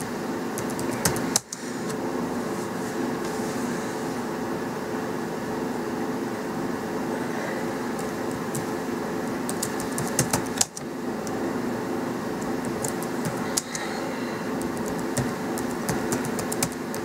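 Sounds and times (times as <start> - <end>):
keyboard keys clicking: 0.0 - 1.6, 8.0 - 11.4, 12.4 - 13.9, 14.6 - 17.0
steady low hum: 0.0 - 17.0.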